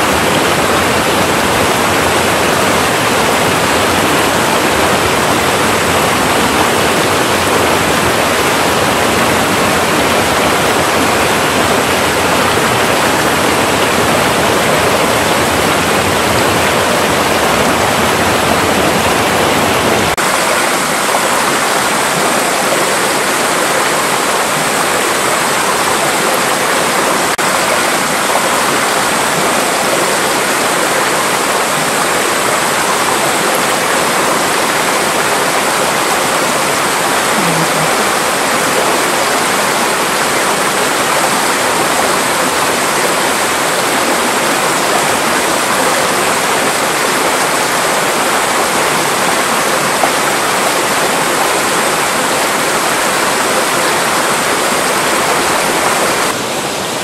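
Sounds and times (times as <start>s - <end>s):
stream water rushing: 0.0s - 57.0s.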